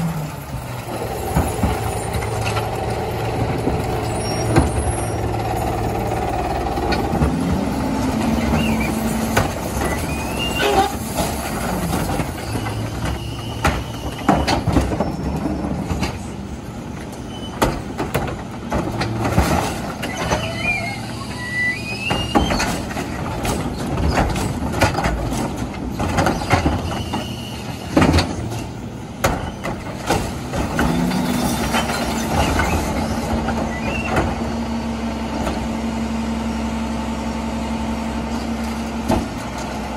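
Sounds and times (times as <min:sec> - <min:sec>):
garbage truck engine running: 0:00.0 - 0:39.9
hydraulic packer running: 0:00.0 - 0:39.9
plastic carts banging on hopper: 0:17.6 - 0:20.5, 0:22.2 - 0:34.4.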